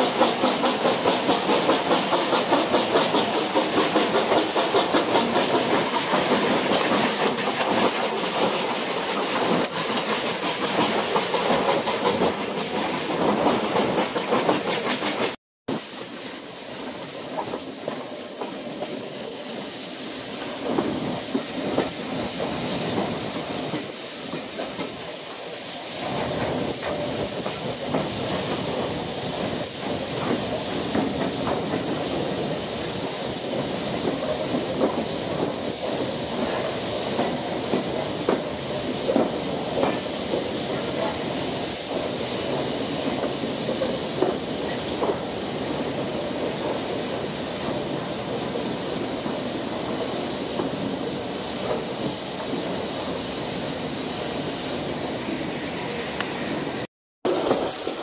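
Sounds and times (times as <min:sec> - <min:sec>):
railway carriage running on track: 0:00.0 - 0:58.0
faint hiss: 0:15.7 - 0:58.0
wheels clicking over rail joints: 0:20.3 - 0:52.8.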